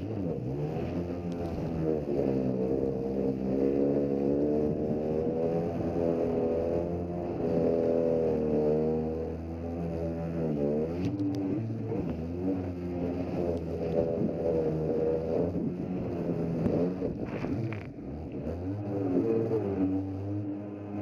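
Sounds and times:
watercraft engine running hard: 0:00.0 - 0:21.0
water splashing against hull: 0:10.9 - 0:18.3.

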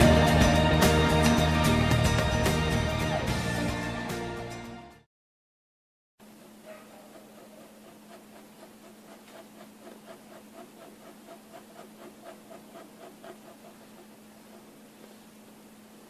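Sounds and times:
pen nib scratching on paper: 0:06.6 - 0:14.8.

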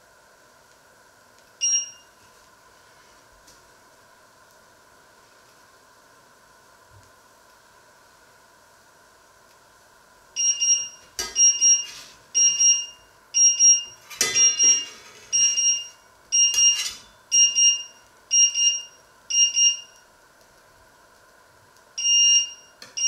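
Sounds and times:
electronic alarm beeping: 0:01.6 - 0:02.1, 0:10.4 - 0:20.0, 0:22.0 - 0:23.0
knife scraping frying pan: 0:11.2 - 0:12.3, 0:14.0 - 0:15.6, 0:16.4 - 0:17.2.

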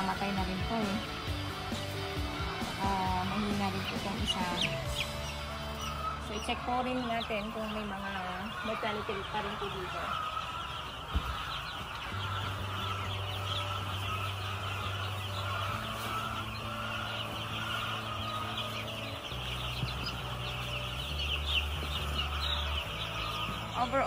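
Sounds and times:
chicks peeping: 0:00.0 - 0:24.0.

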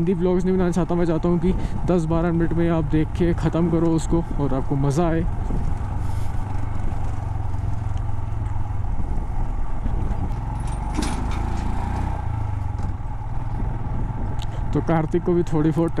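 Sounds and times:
motorcycle engine running: 0:00.0 - 0:16.0
tyres rattling over gravel: 0:10.5 - 0:12.0.

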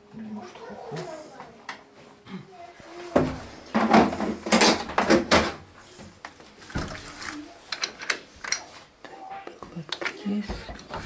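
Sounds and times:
washing machine knocking and scraping: 0:03.2 - 0:05.6.

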